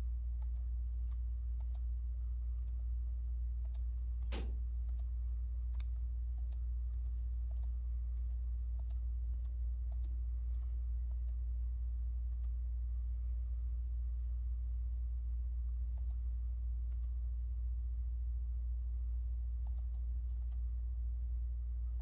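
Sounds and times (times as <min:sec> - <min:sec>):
steady low hum: 0:00.0 - 0:22.0
faint ticks: 0:00.4 - 0:01.9, 0:03.6 - 0:11.5, 0:19.6 - 0:20.7.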